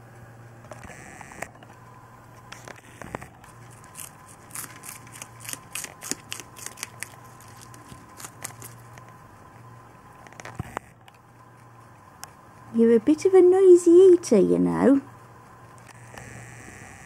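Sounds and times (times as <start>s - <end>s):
rabbit crunching a stem: 3.4s - 9.2s.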